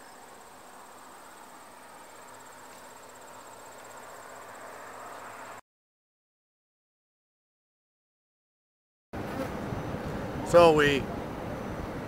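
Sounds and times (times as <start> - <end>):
crickets trilling: 0.0 - 5.6.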